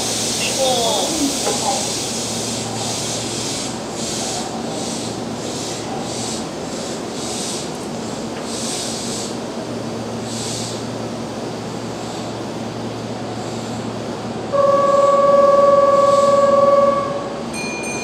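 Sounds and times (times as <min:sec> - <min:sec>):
electric train humming: 0:00.0 - 0:18.0
buzzer-like departure tone: 0:14.5 - 0:18.0.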